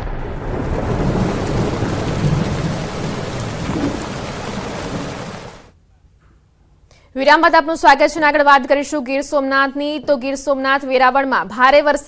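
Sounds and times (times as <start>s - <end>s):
heavy rain pouring: 0.0s - 5.7s
thunder rumbling: 0.0s - 5.7s.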